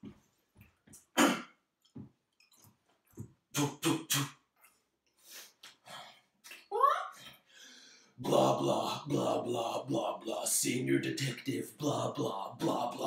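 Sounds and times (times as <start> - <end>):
man making crackling mouth noises: 1.0 - 5.8.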